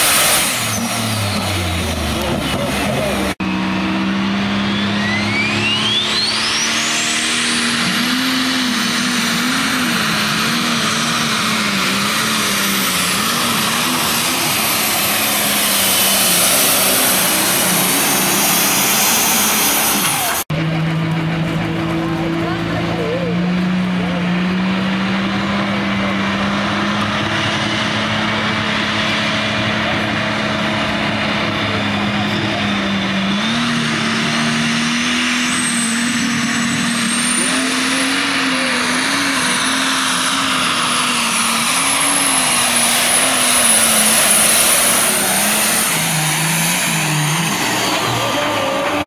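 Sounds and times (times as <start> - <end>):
tractor engine revving: 0.0 - 49.0
high turbo whistle: 4.4 - 10.2, 32.6 - 48.9.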